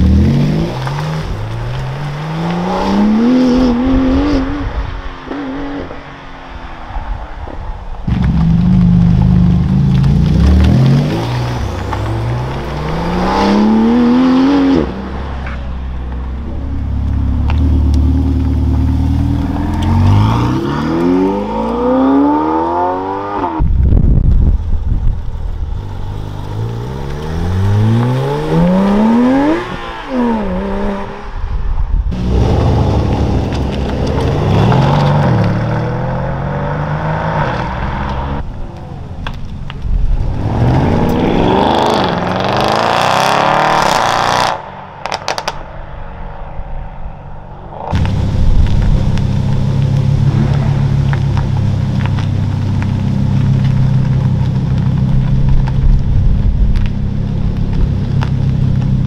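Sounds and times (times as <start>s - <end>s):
car engines revving through gears: 0.0s - 4.7s, 8.1s - 15.2s, 40.3s - 45.5s.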